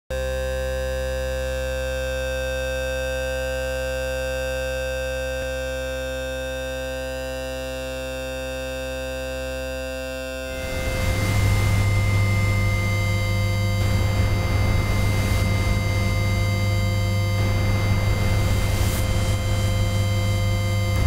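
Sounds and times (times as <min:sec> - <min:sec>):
electronic drone chord: 0:05.1 - 0:21.0.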